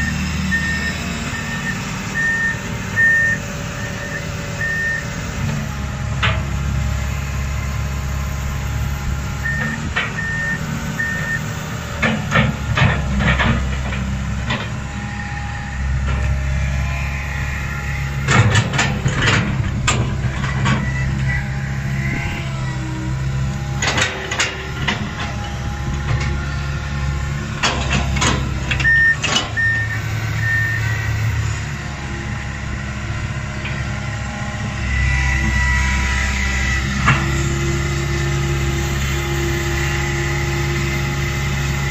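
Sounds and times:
short beeps: 0:00.0 - 0:05.1, 0:09.4 - 0:11.5, 0:28.8 - 0:31.0
excavator diesel engine running: 0:00.0 - 0:41.9.

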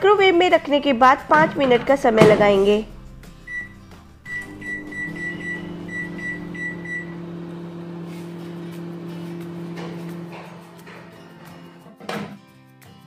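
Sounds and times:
microwave keypad beeps: 0:03.5 - 0:07.2
microwave oven humming: 0:03.5 - 0:11.8.

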